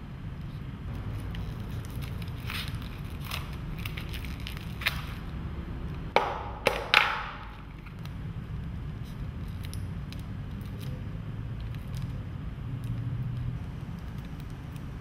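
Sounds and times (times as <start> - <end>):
scissors cutting plastic: 1.0 - 5.3
plastic wrap crinkling: 1.1 - 5.4.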